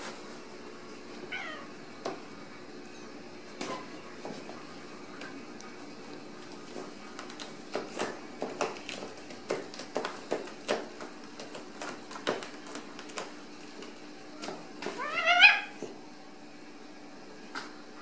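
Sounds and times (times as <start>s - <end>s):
kitten claws scratching cardboard: 6.6s - 14.6s.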